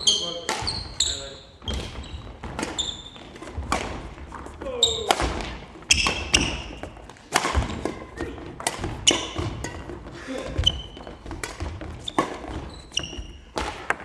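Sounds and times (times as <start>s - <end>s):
shoes squeaking on court: 0.0s - 14.0s
shuttlecock hits: 4.9s - 12.7s.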